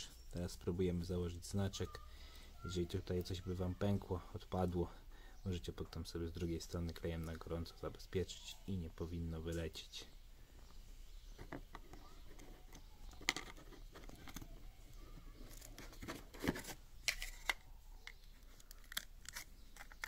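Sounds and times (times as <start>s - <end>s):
plastic clicks and scrapes: 11.4s - 14.6s, 15.4s - 20.0s.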